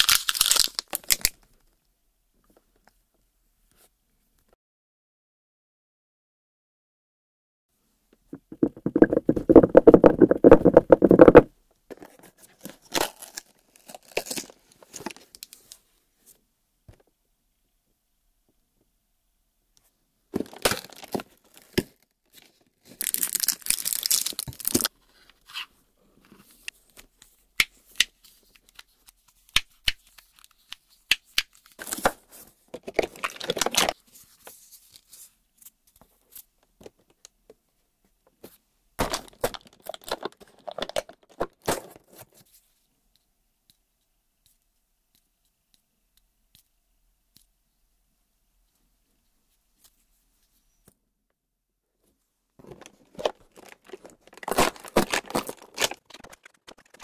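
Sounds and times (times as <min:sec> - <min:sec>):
cardboard packaging tearing: 0:00.0 - 0:01.3, 0:23.0 - 0:24.9, 0:52.6 - 0:57.0.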